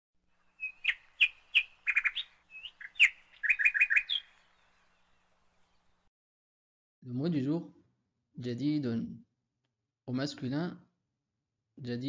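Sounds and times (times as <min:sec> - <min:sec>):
bird chirping and trilling: 0:00.4 - 0:06.0.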